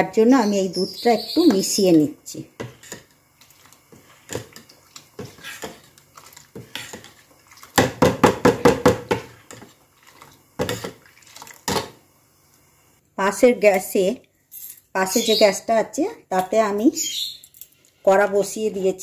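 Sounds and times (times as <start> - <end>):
ladle scraping a steel bowl: 2.6 - 7.8.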